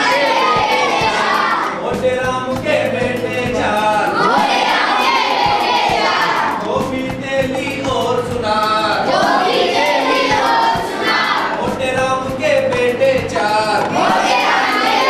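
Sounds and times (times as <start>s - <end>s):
children singing in unison: 0.0s - 1.9s, 4.0s - 6.8s, 8.8s - 11.9s, 13.0s - 15.0s.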